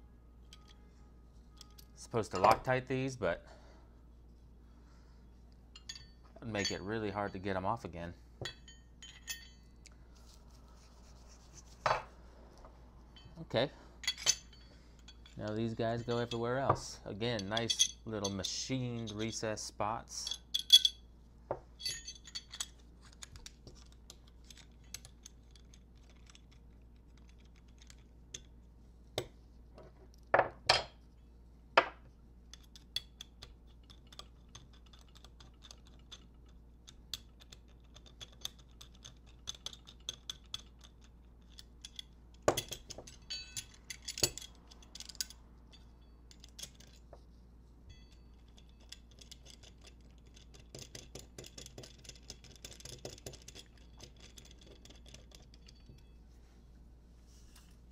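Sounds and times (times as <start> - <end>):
small screws clicking and clinking: 8.5 - 9.7, 20.2 - 21.0, 21.8 - 28.6, 32.5 - 47.1, 47.9 - 56.2.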